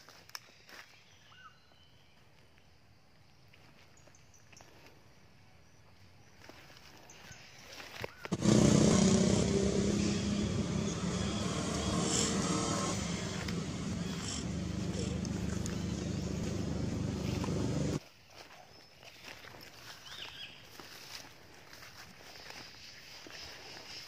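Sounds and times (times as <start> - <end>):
motor engine humming: 8.3 - 18.0.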